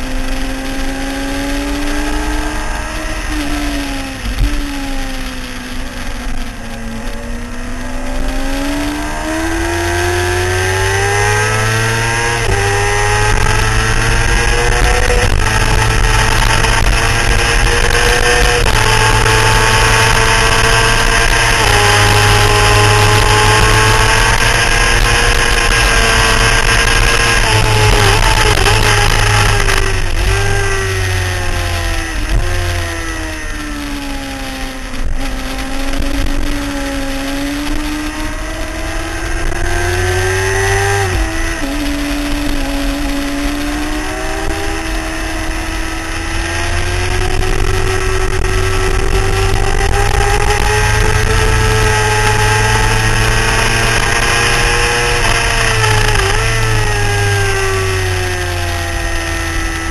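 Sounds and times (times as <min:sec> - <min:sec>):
motorcycle engine accelerating: 0:00.0 - 0:59.9
wind rushing on microphone: 0:34.7 - 0:59.9.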